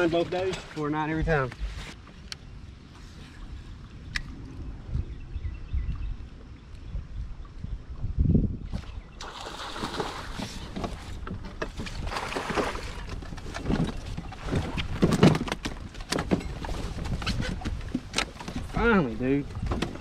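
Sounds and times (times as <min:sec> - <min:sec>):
fish splashing at water surface: 0:09.2 - 0:10.8.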